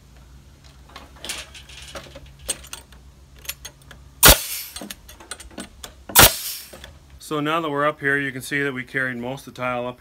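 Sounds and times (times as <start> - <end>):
nail gun bang: 4.2 - 5.0, 6.1 - 6.8.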